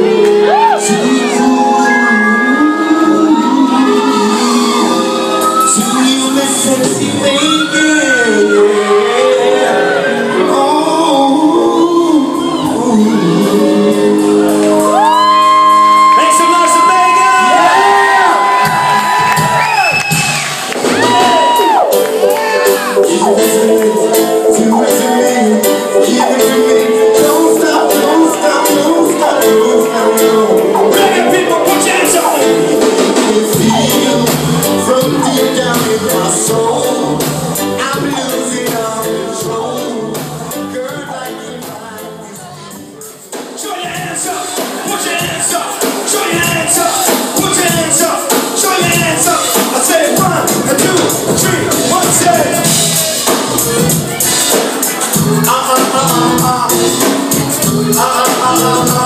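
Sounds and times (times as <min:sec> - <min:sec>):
man singing into a microphone: 0:00.0 - 0:18.4, 0:22.2 - 0:42.8, 0:43.5 - 0:54.2, 0:54.8 - 0:59.0
band playing: 0:00.0 - 0:59.0
deep bass line: 0:17.7 - 0:42.8, 0:50.1 - 0:59.0.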